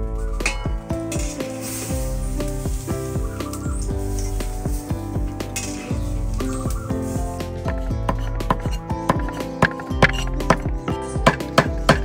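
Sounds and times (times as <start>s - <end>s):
background instrumental music: 0.0s - 12.0s.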